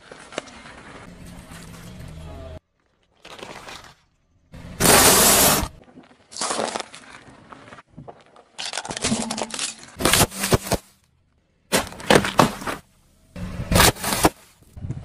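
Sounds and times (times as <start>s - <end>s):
tyre crushing crunchy things: 4.7s - 11.0s, 11.7s - 12.9s, 13.6s - 14.7s.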